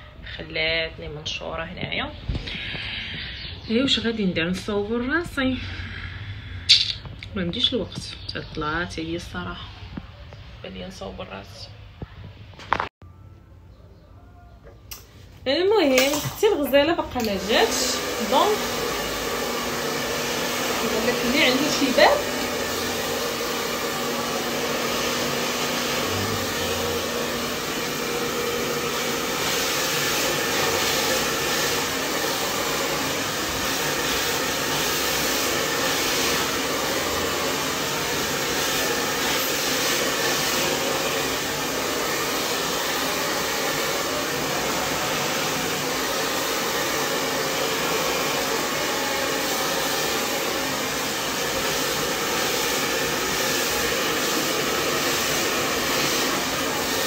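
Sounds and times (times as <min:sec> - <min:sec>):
hair dryer running: 0:17.2 - 0:57.0.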